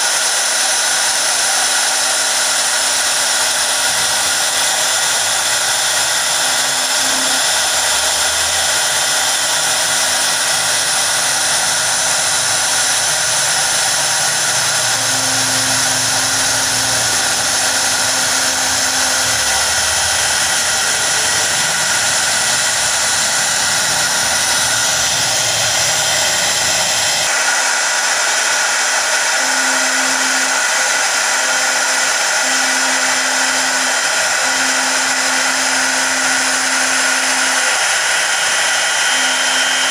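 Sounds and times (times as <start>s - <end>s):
router spindle high-pitched whine: 0.0s - 39.9s.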